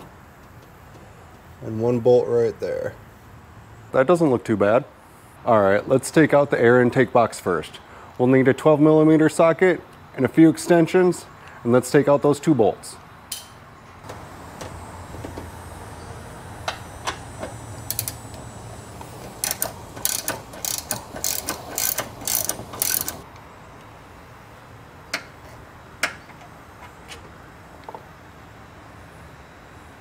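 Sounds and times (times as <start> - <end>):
socket ratchet clicking: 17.8 - 18.4, 19.4 - 23.2.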